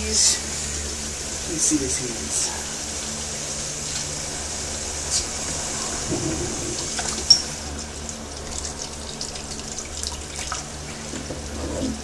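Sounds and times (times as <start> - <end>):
tap water running into bowl: 5.4 - 12.0.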